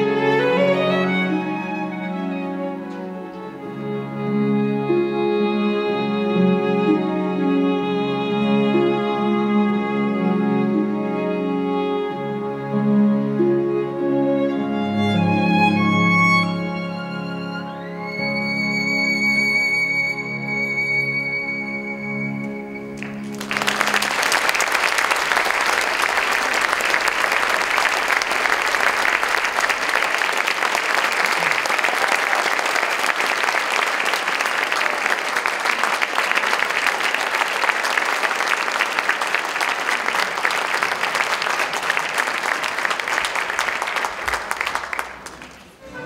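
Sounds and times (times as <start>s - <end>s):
audience applause: 22.8s - 46.0s
string music chord: 45.8s - 46.0s.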